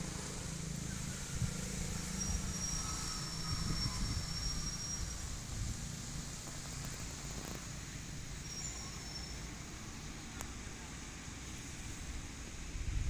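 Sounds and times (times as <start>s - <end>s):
thin high whistle: 0.8s - 5.5s, 8.4s - 9.6s.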